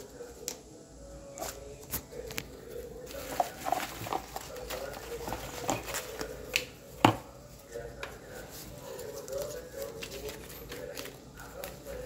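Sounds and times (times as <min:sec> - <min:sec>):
plastic packaging crinkling: 0:02.3 - 0:06.7.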